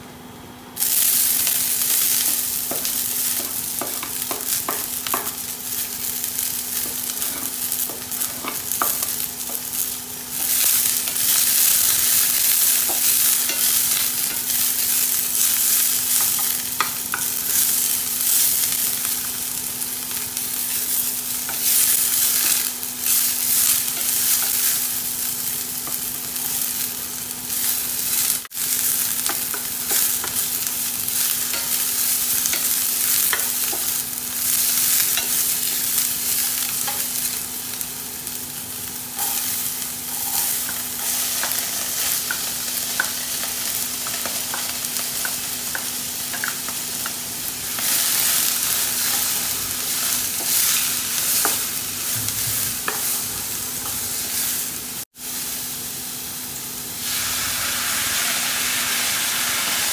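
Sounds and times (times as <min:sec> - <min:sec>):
oil sizzling in a frying pan: 0:00.8 - 0:59.9
water hissing in hot pan: 0:00.8 - 0:59.9.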